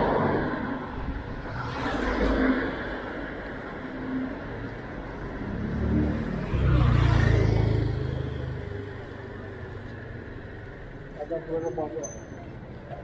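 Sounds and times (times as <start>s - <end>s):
street and riding noise: 0.0s - 13.0s
motor scooter passing: 5.2s - 10.5s.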